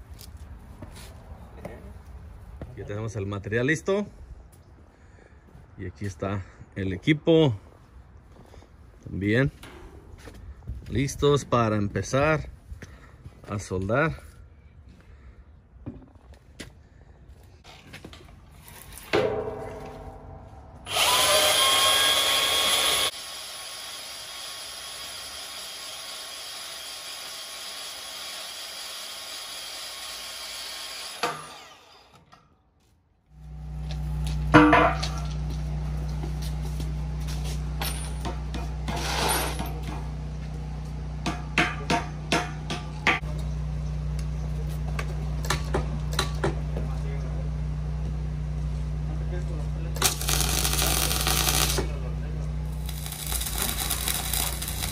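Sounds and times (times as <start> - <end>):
sharp metal knocks on steel post: 19.1 - 20.6, 34.6 - 35.2, 41.2 - 43.3
band saw cutting steel: 20.8 - 32.3, 50.0 - 52.0, 52.7 - 54.9.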